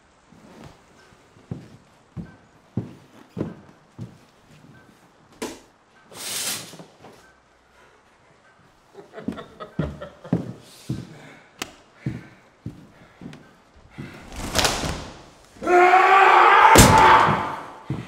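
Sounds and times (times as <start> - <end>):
heavy door slam: 14.0 - 15.4, 16.7 - 17.8.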